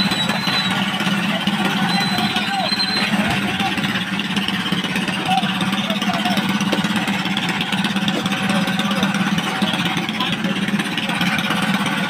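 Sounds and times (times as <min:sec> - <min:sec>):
boat engine pulsing: 0:00.0 - 0:12.0.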